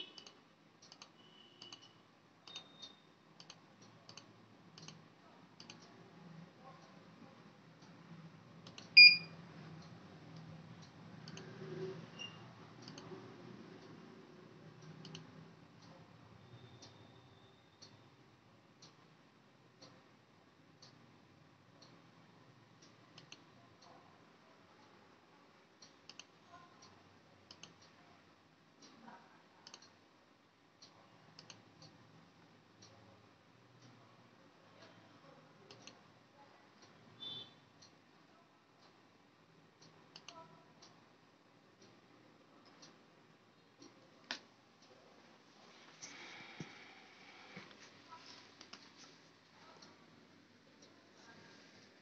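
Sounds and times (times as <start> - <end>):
computer mouse clicks: 0.1 - 5.0, 5.6 - 6.0, 8.6 - 9.2, 9.8 - 13.2, 14.8 - 15.9, 22.8 - 24.0, 25.8 - 27.9, 29.6 - 30.0, 30.8 - 32.0, 35.7 - 36.0, 39.8 - 40.9, 48.5 - 49.2
mouse buttons clicking: 8.6 - 9.3, 40.1 - 40.4
loud electronic beep: 9.0 - 9.3.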